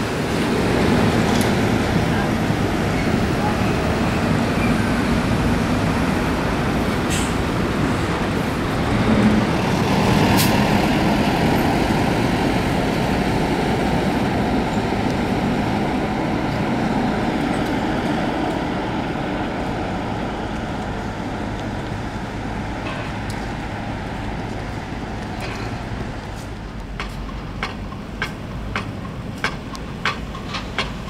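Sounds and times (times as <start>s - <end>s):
heavy trucks passing: 0.0s - 31.0s.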